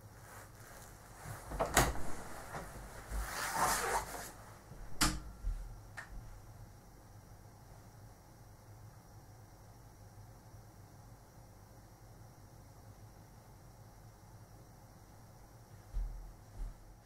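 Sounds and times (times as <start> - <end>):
rustling: 0.2 - 4.4.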